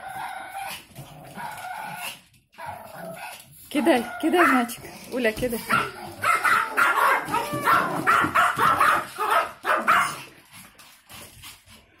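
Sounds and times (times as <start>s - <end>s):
small dogs barking rapidly: 5.6s - 10.3s.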